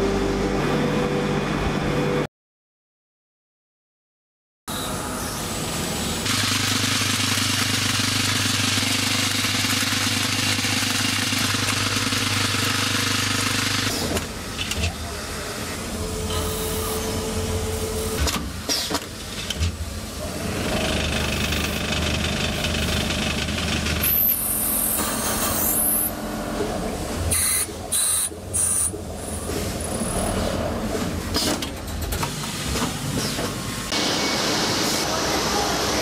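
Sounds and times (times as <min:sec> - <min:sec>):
machine motors running: 0:04.7 - 0:36.0.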